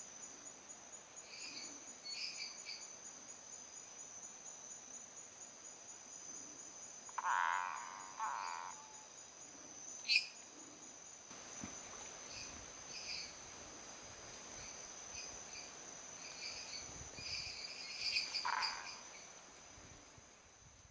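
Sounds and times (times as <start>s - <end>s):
high insect trill: 0.0s - 20.9s
tree frog pulsed calls: 7.1s - 9.1s, 16.3s - 19.3s
treefrogs high notes: 7.2s - 9.0s, 18.0s - 19.2s.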